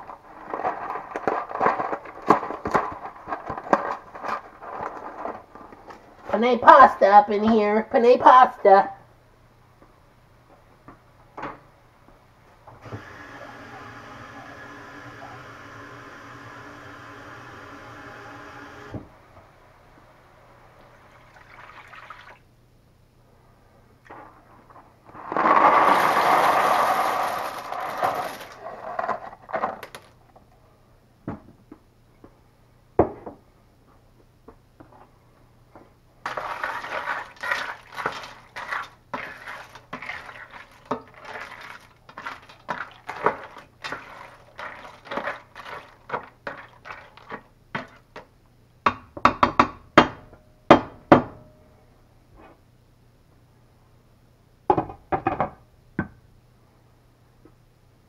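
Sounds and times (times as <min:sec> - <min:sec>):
ladle stirring pasta in pan: 0:00.0 - 0:06.2, 0:36.2 - 0:48.3
dry pasta poured into skillet: 0:25.2 - 0:28.6, 0:36.2 - 0:47.5.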